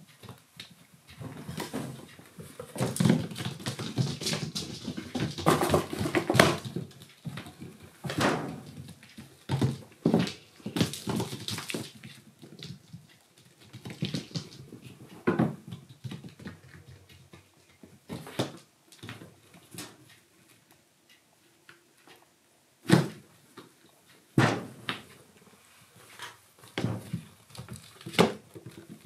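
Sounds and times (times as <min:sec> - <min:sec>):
paws thumping and scuffling: 0:00.2 - 0:19.9.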